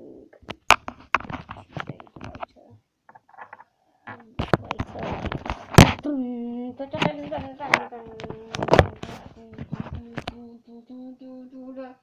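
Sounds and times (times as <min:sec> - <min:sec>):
fingers tapping a microphone: 0:00.4 - 0:02.5, 0:06.9 - 0:10.4.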